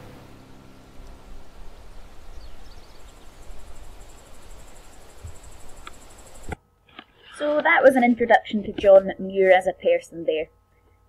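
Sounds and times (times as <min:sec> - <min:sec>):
low rumble: 0:00.0 - 0:04.9.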